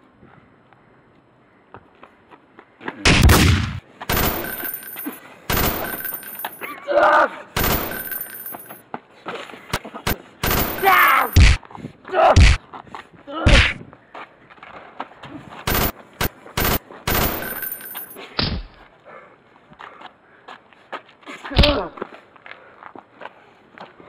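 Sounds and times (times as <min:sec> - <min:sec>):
gunshots in single shots and bursts: 0:03.1 - 0:06.6, 0:07.6 - 0:08.7, 0:09.7 - 0:11.6, 0:15.7 - 0:18.2
short shouts: 0:10.8 - 0:11.4.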